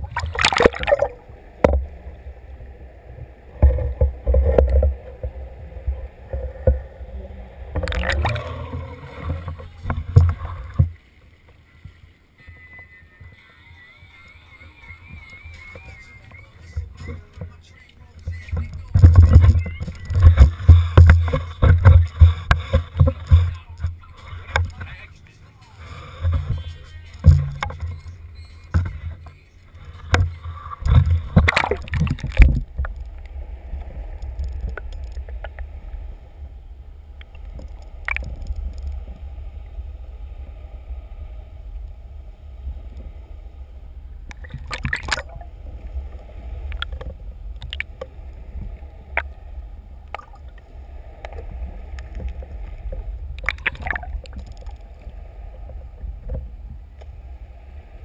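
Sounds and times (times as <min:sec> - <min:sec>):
muffled underwater rumble: 0:00.0 - 0:58.0
water splashing: 0:00.0 - 0:58.0
sharp knocks: 0:27.2 - 0:27.9.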